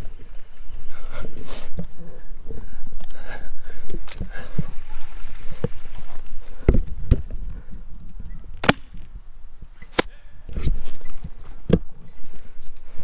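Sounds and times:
airsoft gun shots: 8.6 - 8.9.

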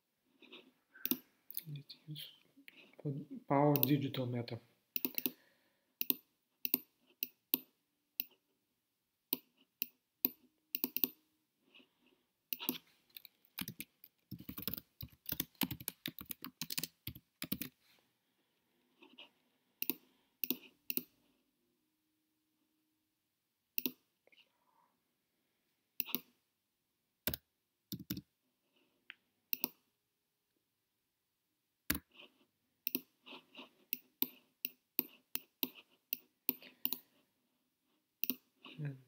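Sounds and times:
computer mouse clicks: 1.0 - 1.6, 3.7 - 4.0, 5.0 - 5.4, 6.0 - 8.4, 9.3 - 11.2, 12.5 - 17.8, 19.8 - 21.2, 23.8 - 24.0, 26.0 - 26.3, 27.3 - 28.2, 29.5 - 29.8, 32.8 - 33.1, 33.9 - 37.1, 38.2 - 38.5
keyboard typing: 5.0 - 5.4, 9.4 - 11.2, 12.5 - 17.8, 19.2 - 21.1, 27.3 - 28.2.

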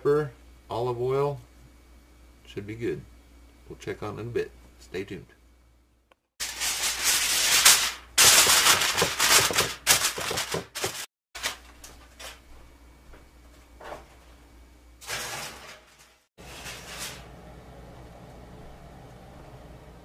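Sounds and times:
aluminium foil crinkling: 6.4 - 12.4.

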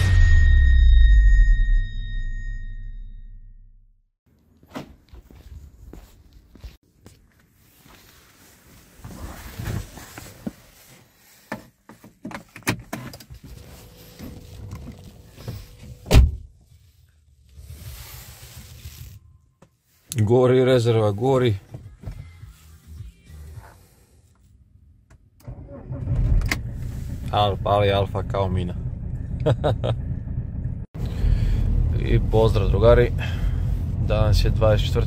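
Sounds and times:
clicks and rustling in car cabin: 11.4 - 16.2.

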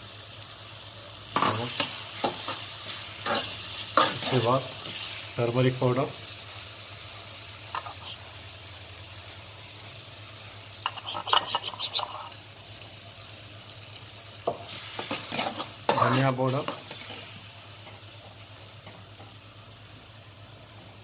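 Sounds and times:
food sizzling in a frying pan: 0.0 - 21.0
spatula clicking and scraping pan: 1.4 - 5.1, 10.8 - 12.4, 14.4 - 19.4.

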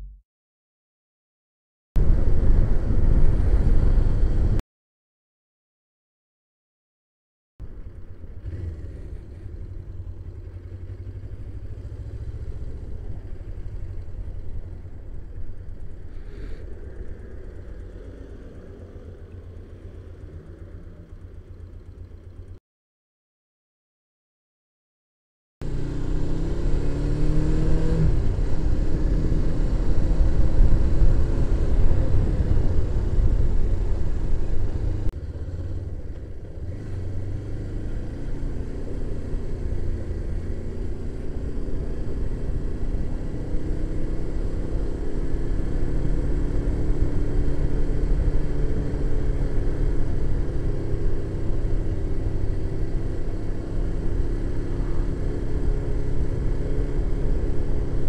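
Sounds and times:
wind rumble on microphone: 2.0 - 4.6, 27.1 - 37.3
motorcycle engine running: 7.6 - 22.6, 25.6 - 58.0.

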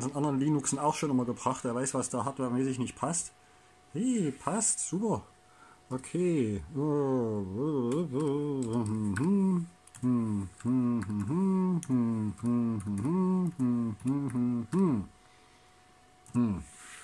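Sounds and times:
man humming a tune: 5.9 - 15.2, 16.2 - 17.0
laptop keys clicking: 7.9 - 14.8.

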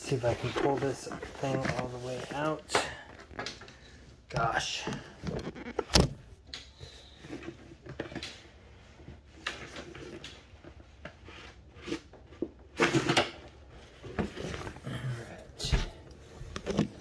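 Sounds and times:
fabric rubbing and scraping: 0.0 - 2.6.

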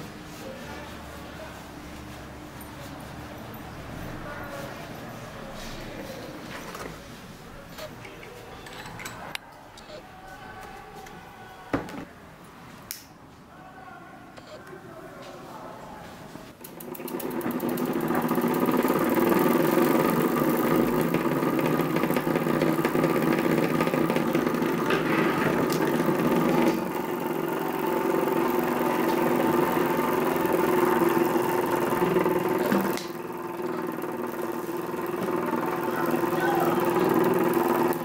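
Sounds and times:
steam engine chuffing: 16.7 - 38.0.

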